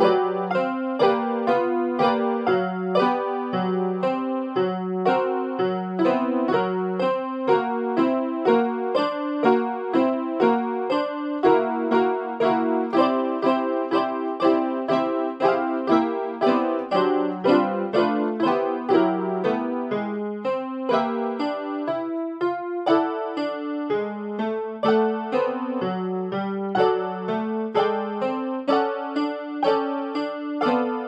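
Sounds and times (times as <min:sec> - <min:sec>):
electronic keyboard electric piano tune: 0:00.0 - 0:31.0.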